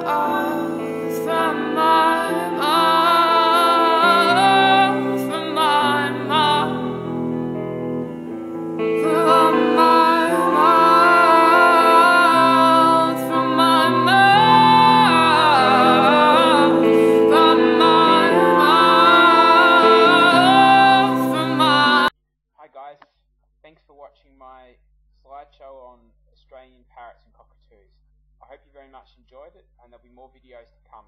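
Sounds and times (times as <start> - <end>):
slow song with sung melody: 0.0 - 22.1.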